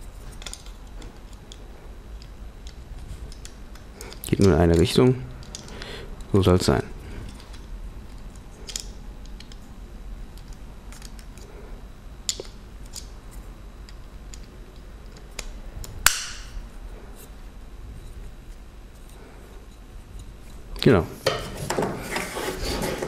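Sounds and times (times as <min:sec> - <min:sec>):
sharp plastic snap: 0:15.4 - 0:16.5.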